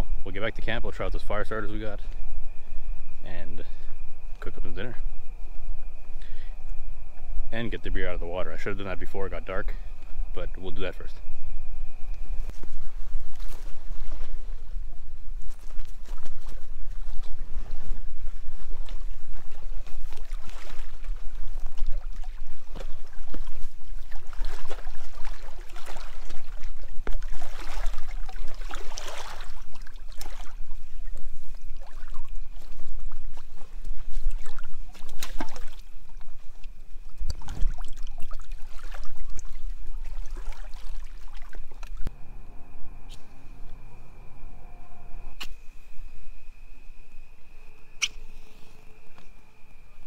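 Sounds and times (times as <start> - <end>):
constant low rumble: 0.0 - 50.0
water splashing and sloshing: 3.6 - 49.8.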